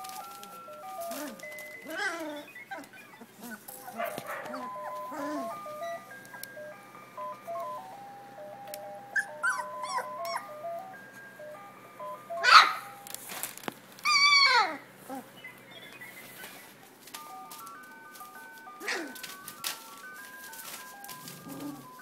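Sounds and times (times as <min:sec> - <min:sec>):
tinkling tune: 0:00.0 - 0:13.4, 0:16.4 - 0:22.0
puppies growling and whining: 0:00.1 - 0:07.8, 0:09.1 - 0:10.8, 0:14.0 - 0:16.3, 0:18.7 - 0:20.1, 0:20.7 - 0:22.0
puppy yelping: 0:01.0 - 0:06.0, 0:09.2 - 0:10.6, 0:12.3 - 0:13.0, 0:14.0 - 0:15.3, 0:18.8 - 0:19.3.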